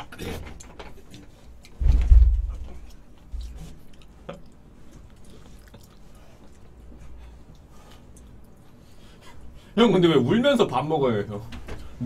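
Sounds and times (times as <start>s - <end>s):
body thudding onto floor: 1.8s - 2.6s.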